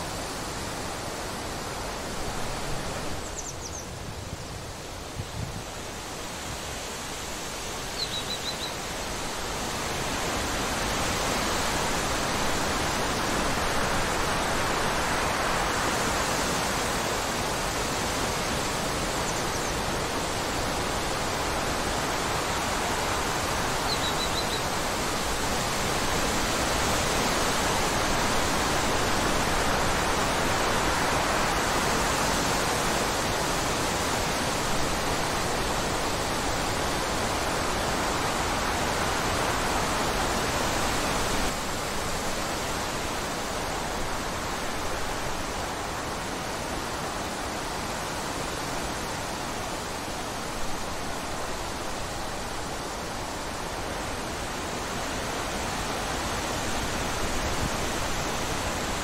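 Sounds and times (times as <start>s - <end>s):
wind through grass and leaves: 0.0s - 59.0s
bird chirping: 3.2s - 3.9s, 8.0s - 8.8s, 23.9s - 24.6s.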